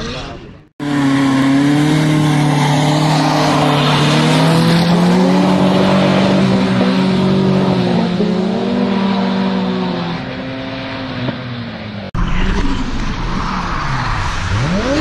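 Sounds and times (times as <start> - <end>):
car engines at high revs: 0.8 - 15.0.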